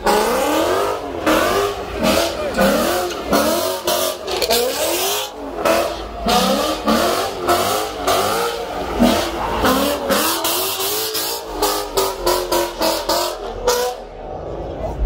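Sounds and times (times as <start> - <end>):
car engine revving hard: 0.0 - 14.2.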